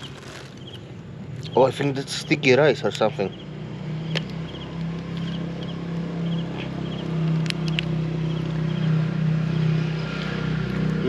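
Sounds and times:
low motor hum: 2.8 - 11.0
sharp clicks: 4.1 - 5.4, 7.2 - 8.6.

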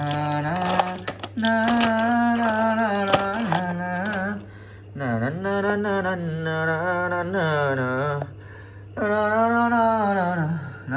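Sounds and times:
toy cars clicking on plastic tray: 0.0 - 4.4
steady low hum: 0.0 - 10.9.

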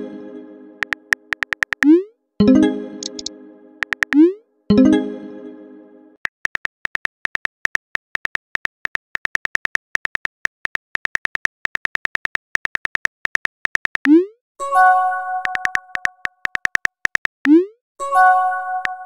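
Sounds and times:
phone keyboard typing clicks: 0.8 - 2.0, 3.0 - 4.2, 6.3 - 14.2, 15.4 - 17.6.

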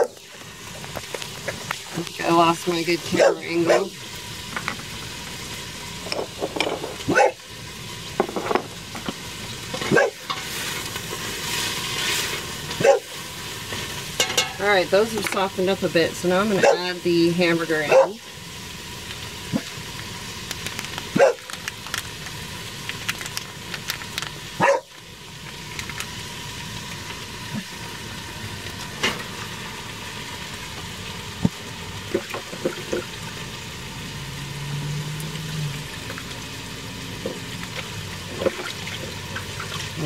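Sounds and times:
dog barking: 0.0 - 0.2, 3.2 - 4.0, 7.1 - 7.4, 9.9 - 10.2, 12.8 - 13.1, 16.6 - 16.9, 17.9 - 18.2, 21.2 - 21.4, 24.6 - 24.9
vegetables sizzling in oil: 0.0 - 40.0.

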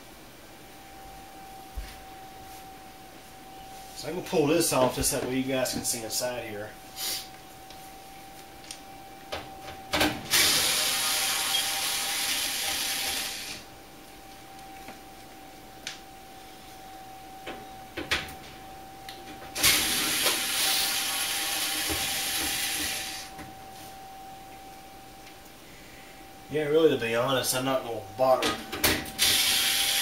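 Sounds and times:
cordless screwdriver running: 29.2 - 30.0.

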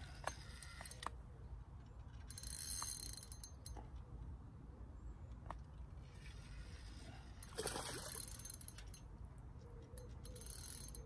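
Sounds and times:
fishing reel clicking: 0.0 - 1.1, 2.3 - 3.7, 6.2 - 9.1, 10.0 - 11.0.

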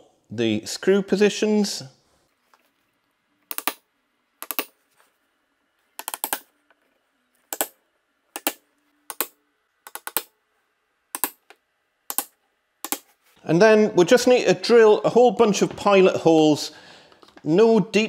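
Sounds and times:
hammer tapping an awl: 8.4 - 10.3.

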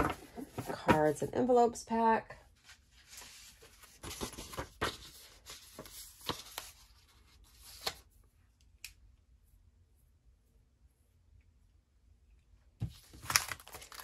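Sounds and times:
paper cards rustling: 2.6 - 8.1, 12.9 - 14.0
packaging crinkles and taps: 12.8 - 14.0.

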